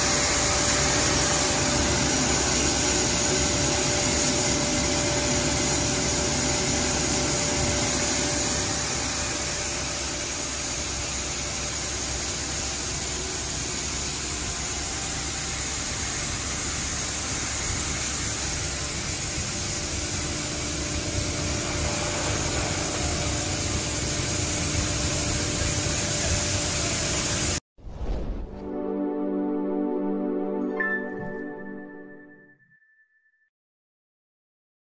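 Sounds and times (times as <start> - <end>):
pelletizing machine running: 0.0 - 27.6
soft music: 28.5 - 32.7.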